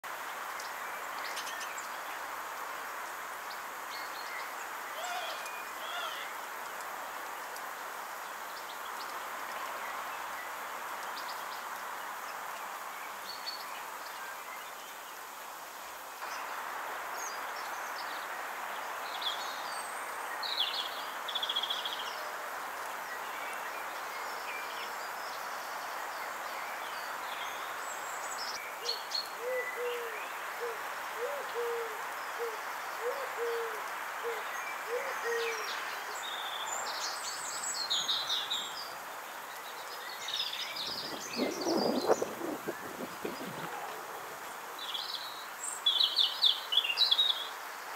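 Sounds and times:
small birds chirping: 0.0s - 16.5s, 17.1s - 47.9s
background hiss: 0.0s - 47.9s
pigeon cooing: 29.4s - 35.6s.

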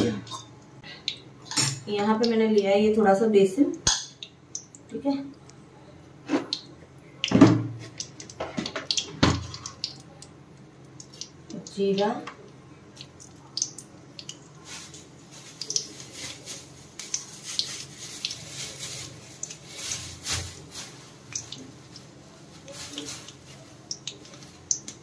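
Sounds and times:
seeds crackling in hot oil: 6.5s - 25.0s.

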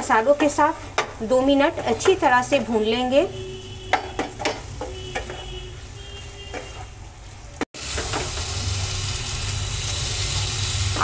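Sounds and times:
potatoes sizzling in oil: 7.8s - 11.0s.

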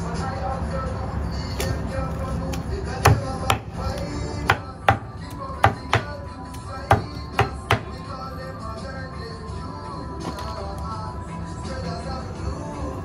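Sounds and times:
cleaver chopping meat on wood: 3.0s - 6.2s, 6.8s - 8.0s.

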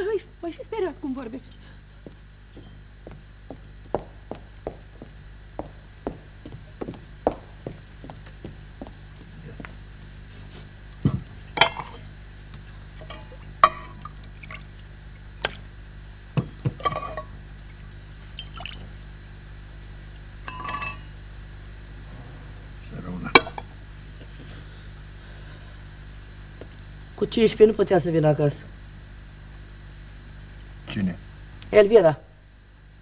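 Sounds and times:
liquid being poured: 17.1s - 19.0s.

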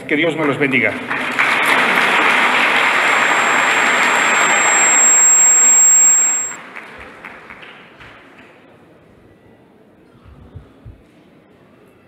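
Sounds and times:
high-pitched whine: 2.1s - 6.6s.

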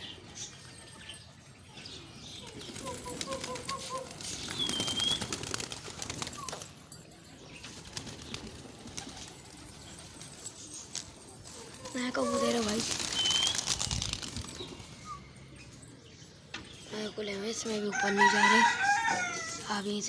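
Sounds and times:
pigeon calls: 2.3s - 6.8s, 7.6s - 16.0s
pigeons flapping wings: 2.4s - 6.8s, 7.6s - 14.9s.

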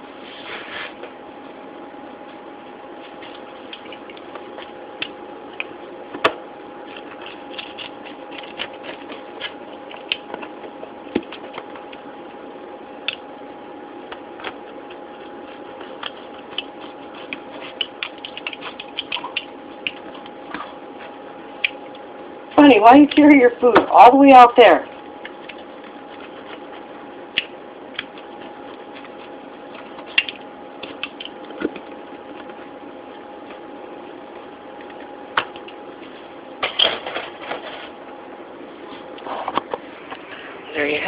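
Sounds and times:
steady hum: 0.0s - 41.0s
pizza cutter crackling through crust: 6.7s - 12.2s, 13.9s - 21.9s, 25.1s - 35.8s.

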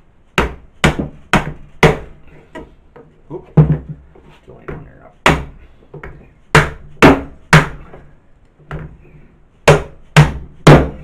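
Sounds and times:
mallet striking plastic pipe: 0.4s - 2.1s, 5.2s - 7.9s, 9.6s - 11.0s.

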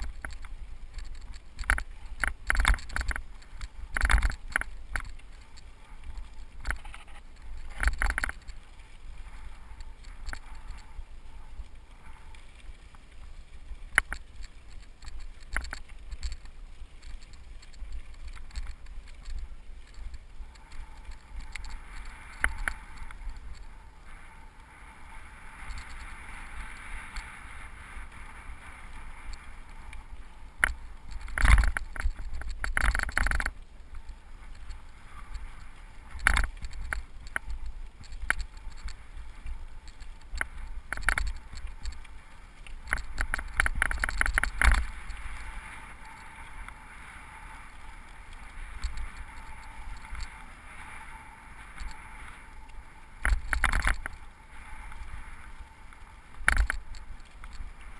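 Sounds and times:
bike rattling with sharp knocks: 0.0s - 5.6s, 30.6s - 33.6s, 42.8s - 45.2s
bike tyres on loose dirt: 0.0s - 57.9s.

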